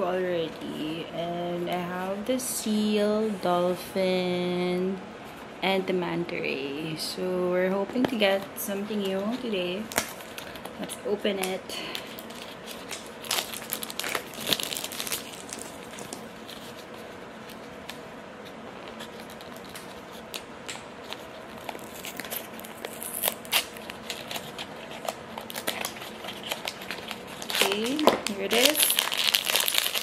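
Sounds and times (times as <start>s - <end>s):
cardboard box crinkling and tearing: 12.1s - 16.8s, 21.6s - 30.0s.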